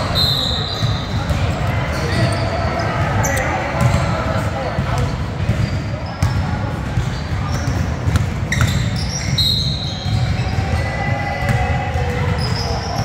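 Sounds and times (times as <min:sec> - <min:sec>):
sneakers squeaking: 0:00.0 - 0:13.0.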